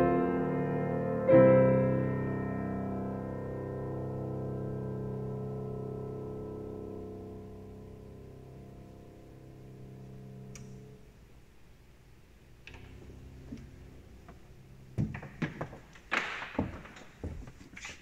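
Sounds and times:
piano chord ringing: 0.0s - 11.0s
sharp knocks and thumps: 12.7s - 17.9s.

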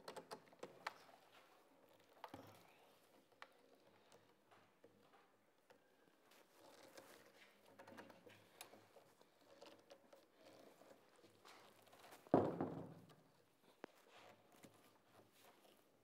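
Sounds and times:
loud knock on wooden workbench: 12.4s - 13.0s.

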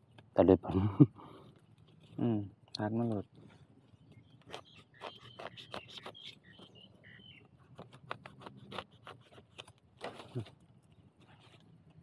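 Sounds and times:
dry leaves and twigs crackling: 1.2s - 12.0s.

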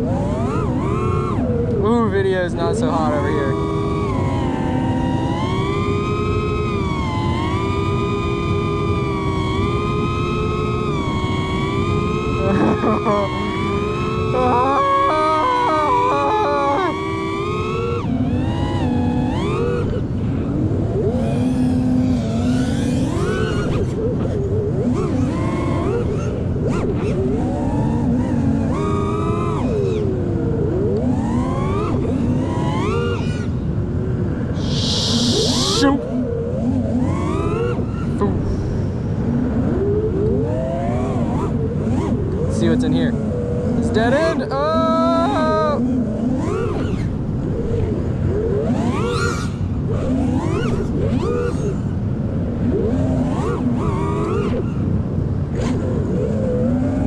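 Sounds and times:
drone motors whining: 0.0s - 57.0s
wind rushing: 34.4s - 36.1s.

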